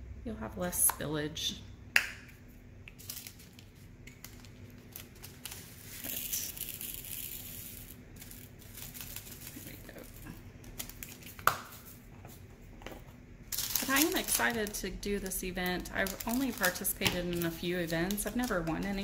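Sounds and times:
plastic bag crinkling: 3.0s - 12.0s, 13.5s - 19.0s
beads pouring into container: 5.7s - 9.8s.

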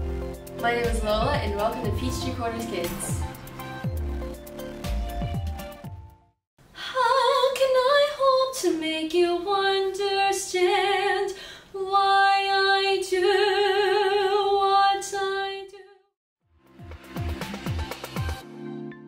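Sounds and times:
girl singing unaccompanied: 6.8s - 15.9s.

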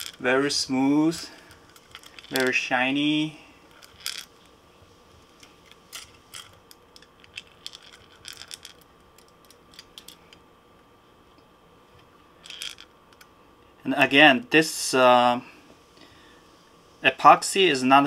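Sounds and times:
small metal hooks clinking: 1.4s - 2.6s, 3.7s - 4.3s, 5.6s - 10.2s, 12.4s - 12.9s.

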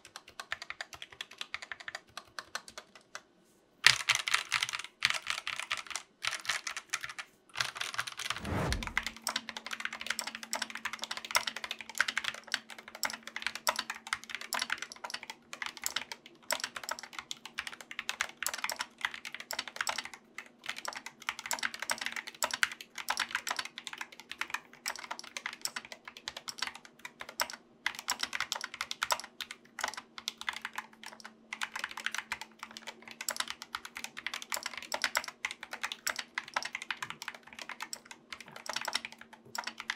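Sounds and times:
fast typing on mechanical keyboard: 0.0s - 3.2s, 3.8s - 39.9s
falling whoosh: 8.4s - 9.1s.

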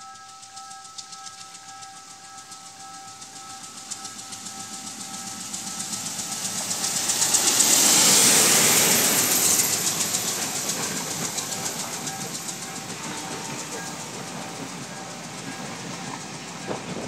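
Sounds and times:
diesel locomotive engine running: 0.0s - 17.0s
train wheels clicking over rails: 0.0s - 17.0s.

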